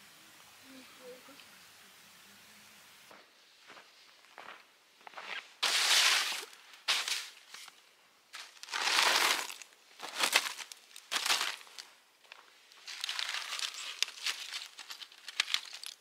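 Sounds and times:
rustling and crunching: 3.6s - 16.0s.

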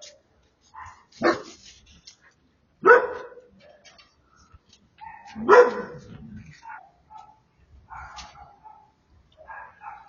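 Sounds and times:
dog barking: 0.8s - 1.6s, 2.8s - 3.5s, 5.0s - 10.0s.

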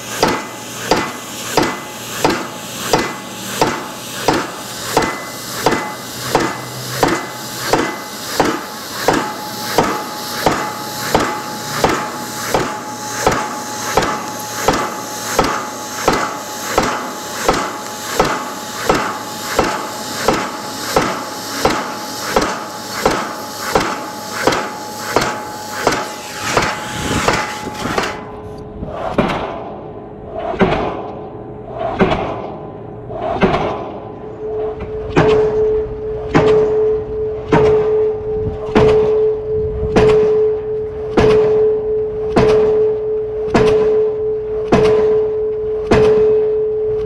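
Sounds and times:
cutting torch hiss: 0.0s - 28.3s
pile hammer metallic strikes: 0.0s - 46.8s
steady hum: 0.0s - 47.0s.

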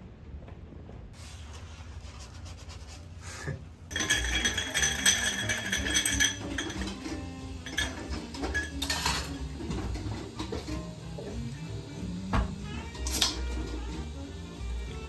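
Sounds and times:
ice clinking in mixing glass: 3.9s - 9.5s.

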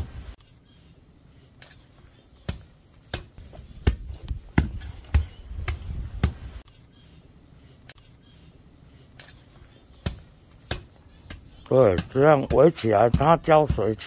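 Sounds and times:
dull thuds: 2.5s - 6.6s.

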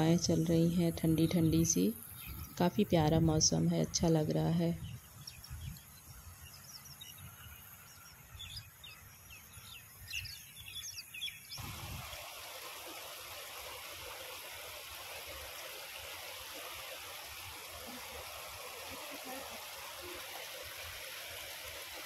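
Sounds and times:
wind rumbling on microphone: 0.0s - 6.3s, 11.6s - 12.2s
small birds chirping: 1.0s - 3.3s, 3.9s - 11.6s
flowing water rushing: 11.5s - 22.0s.

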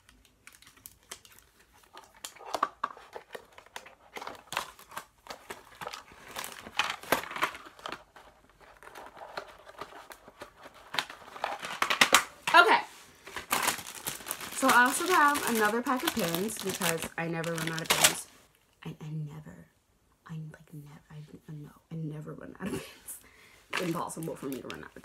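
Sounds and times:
crinkling plastic packaging: 0.0s - 18.5s, 23.7s - 25.0s.

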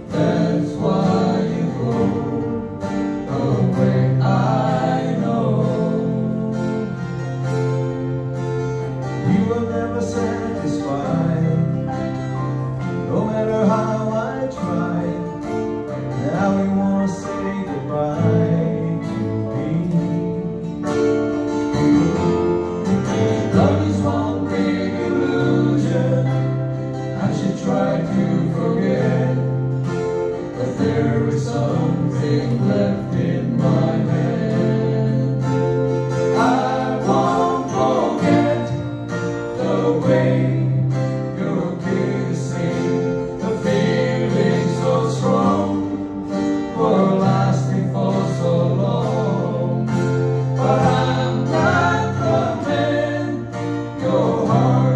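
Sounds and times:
voices singing: 0.0s - 8.3s, 22.1s - 54.9s
acoustic guitars: 0.0s - 54.9s
keyboard playing: 0.0s - 54.9s.

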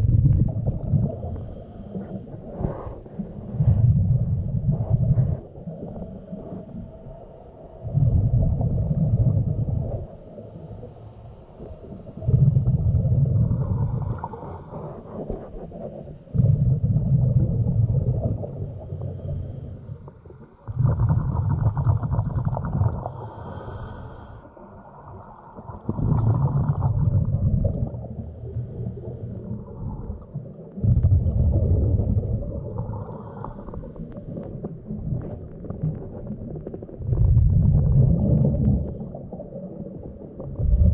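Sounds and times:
bubbles gurgling: 0.0s - 1.4s, 7.8s - 10.2s, 12.1s - 19.1s, 20.2s - 23.3s, 24.8s - 28.6s, 29.4s - 40.9s
diver breathing underwater: 1.0s - 3.8s, 10.0s - 17.1s, 18.1s - 25.0s, 25.8s - 30.2s, 32.1s - 34.8s.

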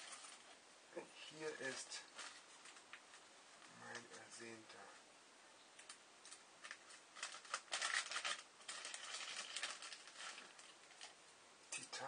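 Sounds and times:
plastic bag and paper crinkling: 0.0s - 0.6s, 1.3s - 4.2s, 5.8s - 11.2s.

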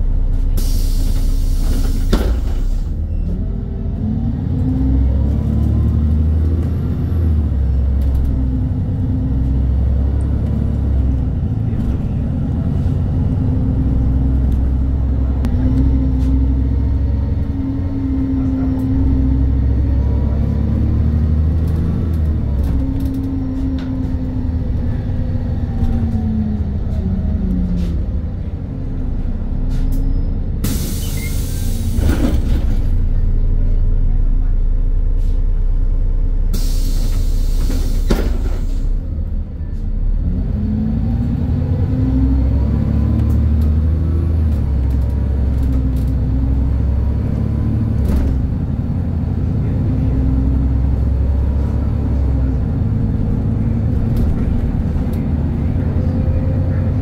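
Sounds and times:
bus engine rumble and whine: 0.0s - 57.0s
air brake hiss: 0.6s - 3.0s, 30.6s - 32.1s, 36.5s - 39.0s.

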